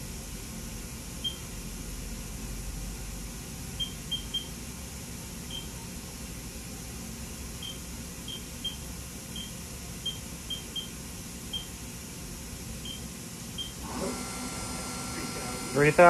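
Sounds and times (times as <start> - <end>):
idle machine hum: 3.4 - 16.0
high electronic keypad beeps: 3.8 - 4.5, 7.6 - 10.9, 12.8 - 13.0
loud machine sound: 13.8 - 16.0.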